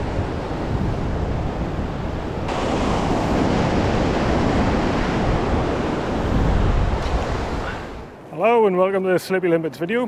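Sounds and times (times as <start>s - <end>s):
surf breaking on sandy beach: 0.0s - 8.2s
wind buffeting microphone: 0.0s - 8.3s.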